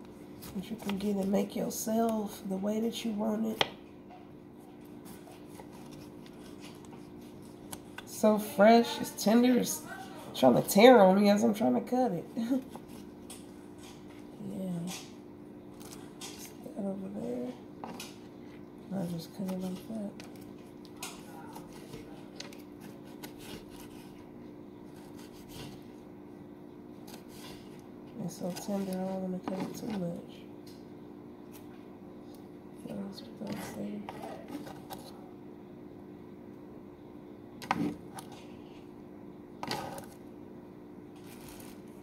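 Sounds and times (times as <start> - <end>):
faint steady hum: 0.0 - 42.0
knife slicing tomato: 21.0 - 24.2, 24.8 - 25.9.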